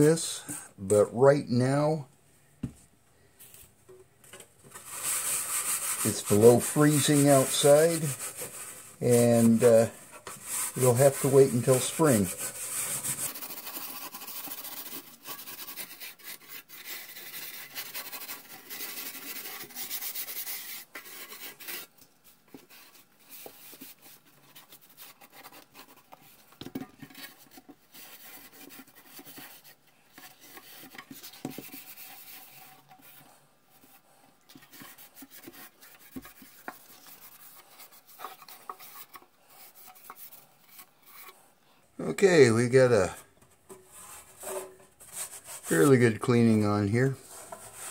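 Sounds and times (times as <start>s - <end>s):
steel wool scrubbing metal: 4.7s - 21.9s, 43.8s - 47.9s.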